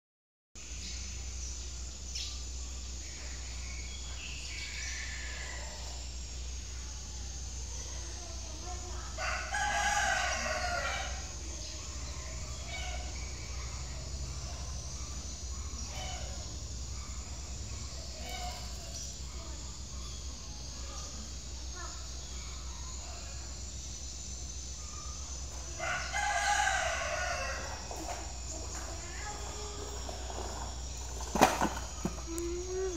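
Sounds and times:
rooster crowing: 0:09.2 - 0:11.4, 0:25.7 - 0:27.9.

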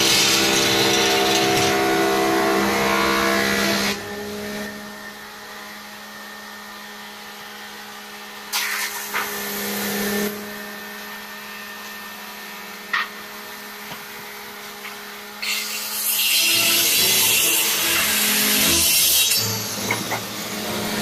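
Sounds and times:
tool scraping spinning wood: 0:00.0 - 0:04.0
lathe motor hum: 0:00.0 - 0:08.1.

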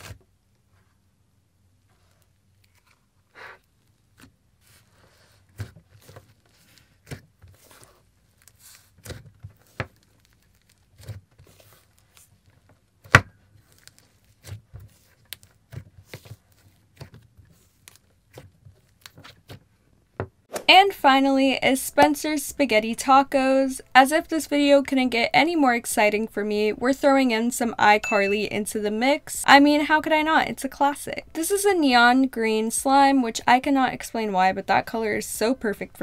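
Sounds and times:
clay slime squelching and popping: 0:03.7 - 0:20.5.

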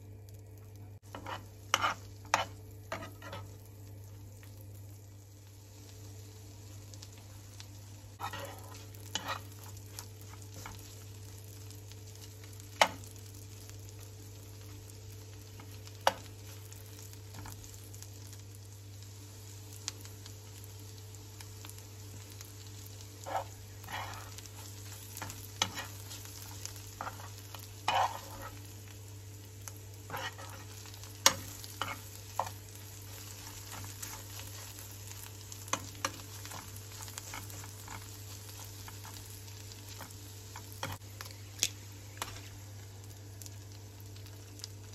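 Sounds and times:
tomatoes sizzling in a frying pan: 0:00.0 - 0:44.9
metal spoon scraping a pan: 0:01.1 - 0:03.5, 0:08.2 - 0:09.7, 0:23.2 - 0:28.6, 0:30.1 - 0:34.8.

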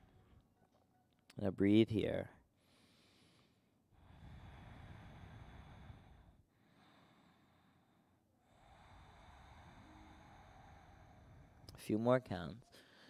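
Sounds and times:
man breathing slowly: 0:00.0 - 0:00.5, 0:02.6 - 0:11.8, 0:12.7 - 0:13.0.

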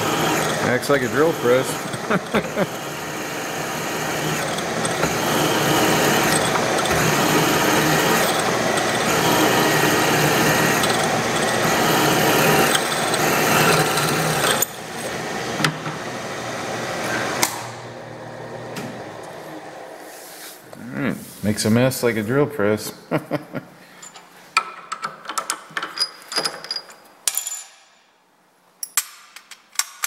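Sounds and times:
drill press drilling metal: 0:00.0 - 0:16.0.

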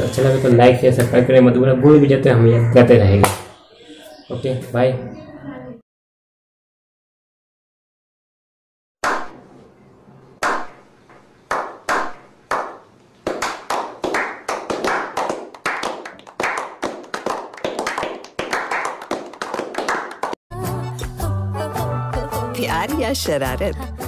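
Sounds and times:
group hand clapping: 0:11.5 - 0:20.4
music: 0:20.5 - 0:24.0.

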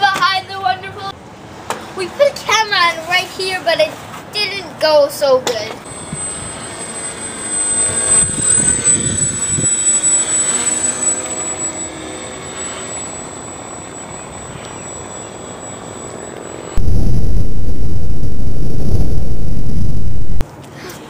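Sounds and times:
rc plane propellers buzzing: 0:05.9 - 0:20.4
thin high whine: 0:05.9 - 0:20.4.

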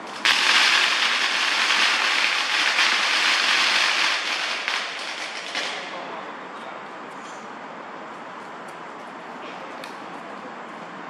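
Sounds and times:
firecrackers crackling: 0:00.0 - 0:06.2.

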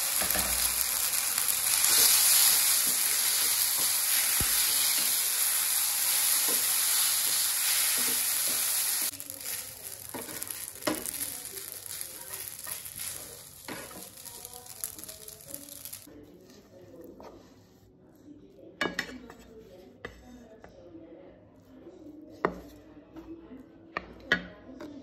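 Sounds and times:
spaghetti sizzling in oil: 0:00.0 - 0:16.1
spatula scraping and tapping pan: 0:01.7 - 0:05.2, 0:06.1 - 0:16.1.

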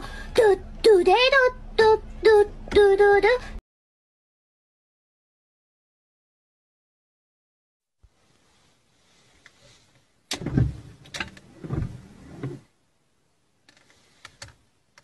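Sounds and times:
windshield wipers sweeping: 0:10.3 - 0:12.6.

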